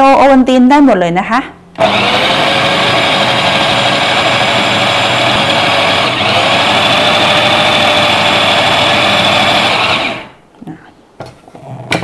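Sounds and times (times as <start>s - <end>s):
food processor whining and grinding: 1.8s - 10.4s.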